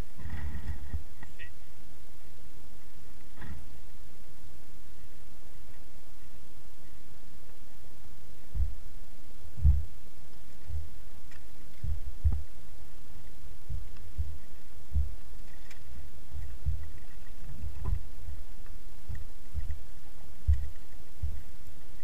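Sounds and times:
steady hiss: 0:00.0 - 0:22.0
wind buffeting the microphone: 0:05.2 - 0:22.0.

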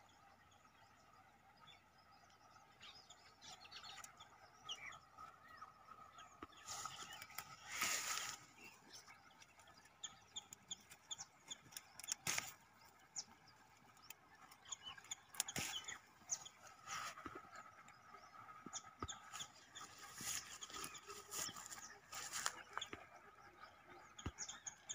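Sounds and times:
small birds chirping: 0:00.0 - 0:24.9
leaves rustling: 0:06.6 - 0:08.9, 0:12.2 - 0:12.6, 0:19.8 - 0:22.6.

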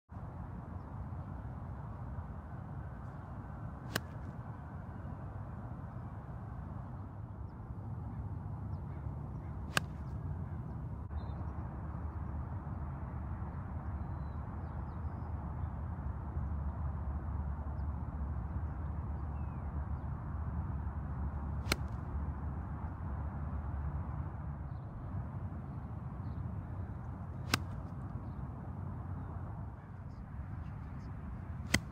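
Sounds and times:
golf club striking ball: 0:31.7 - 0:31.9.

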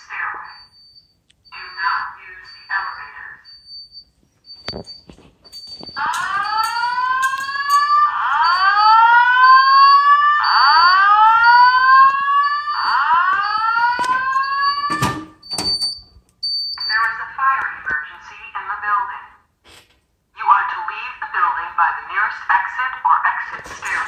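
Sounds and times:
spoken announcement: 0:00.0 - 0:00.8, 0:01.5 - 0:03.6, 0:16.8 - 0:19.5, 0:20.3 - 0:24.0
faint high beep: 0:00.5 - 0:06.2
rising whoop alarm tone: 0:06.0 - 0:15.0.

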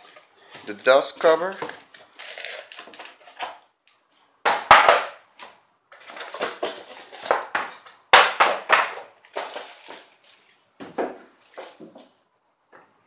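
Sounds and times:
cardboard and paper rustling: 0:05.9 - 0:07.9, 0:09.3 - 0:12.0.

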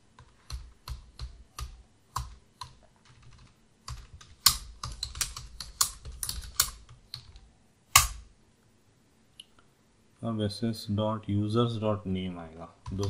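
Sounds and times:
keyboard typing: 0:00.2 - 0:07.4, 0:12.8 - 0:13.0.

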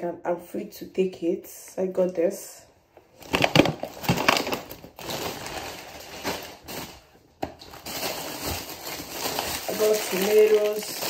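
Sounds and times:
plastic bags rustling and crinkling: 0:03.1 - 0:11.0.

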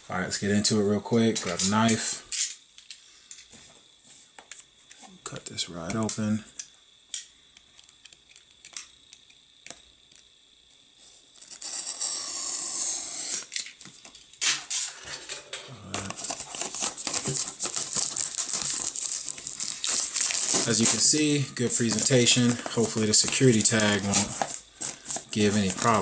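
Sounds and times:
cardboard and plastic crinkling: 0:15.8 - 0:26.0.

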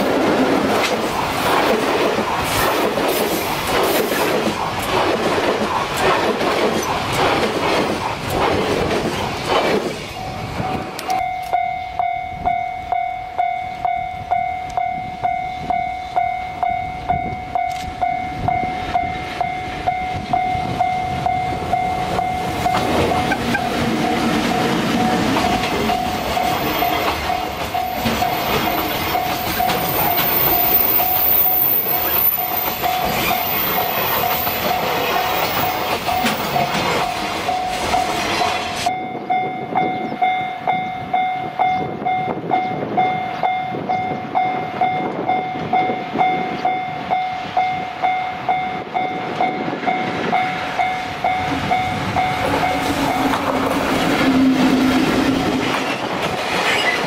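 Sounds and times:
train wheels clickety-clack: 0:00.0 - 0:11.6, 0:17.5 - 0:38.9, 0:43.3 - 0:57.0
electric locomotive passing: 0:00.0 - 0:57.0
level-crossing bell ringing: 0:10.2 - 0:55.5.

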